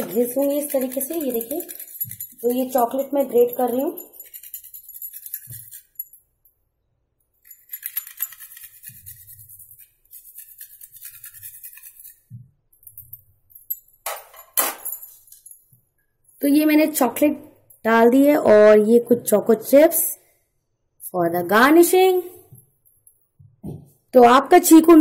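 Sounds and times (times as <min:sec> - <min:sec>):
chocolate grating on metal grater: 0:00.0 - 0:06.0, 0:07.7 - 0:12.3.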